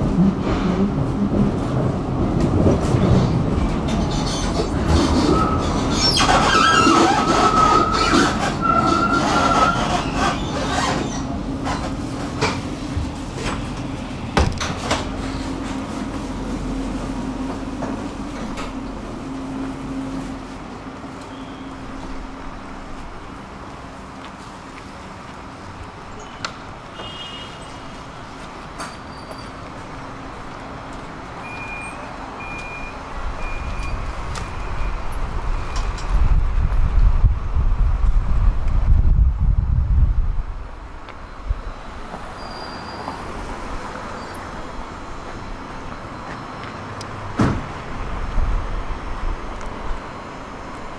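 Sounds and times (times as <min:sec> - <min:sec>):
tram wheels squealing: 0:02.7 - 0:12.6, 0:21.2 - 0:22.4, 0:26.1 - 0:36.4, 0:41.2 - 0:47.4
high warning beeps: 0:31.4 - 0:35.0.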